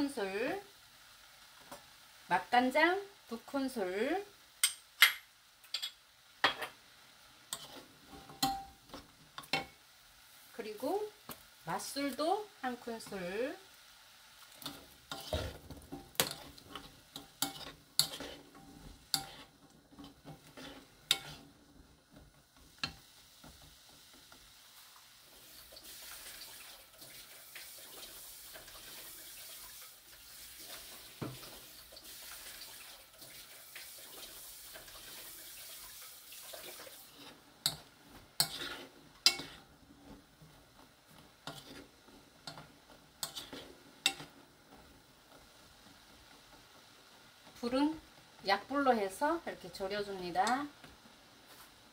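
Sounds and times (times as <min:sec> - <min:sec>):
liquid simmering and bubbling: 0:14.4 - 0:48.4.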